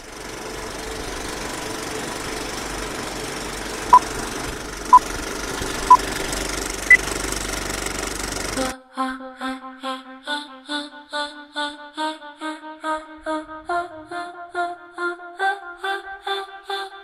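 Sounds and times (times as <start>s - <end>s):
film projector clattering: 0.0s - 8.6s.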